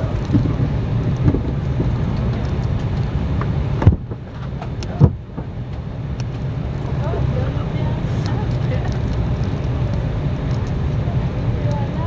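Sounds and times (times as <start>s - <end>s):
aircraft cabin rumble and hiss: 0.0s - 12.0s
sharp thumps: 0.2s - 5.9s.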